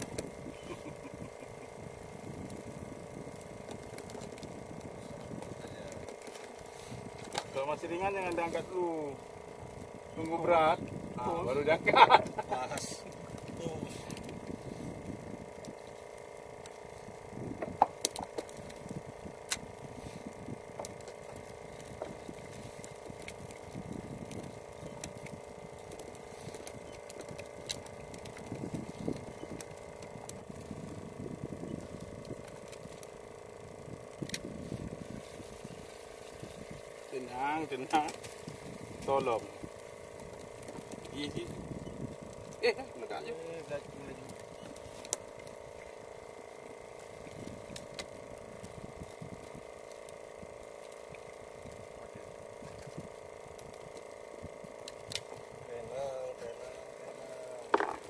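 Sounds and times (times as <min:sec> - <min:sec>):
wind rumbling on microphone: 0:00.0 - 0:44.9, 0:47.1 - 0:49.8
boat engine humming: 0:00.0 - 0:58.0
clicks and knocks on wood: 0:57.7 - 0:58.0.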